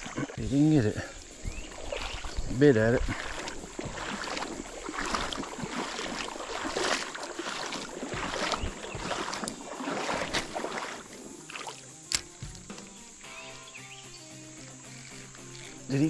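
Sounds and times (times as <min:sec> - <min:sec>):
creek water splashing: 0:00.0 - 0:14.0
steady hiss: 0:00.4 - 0:06.5.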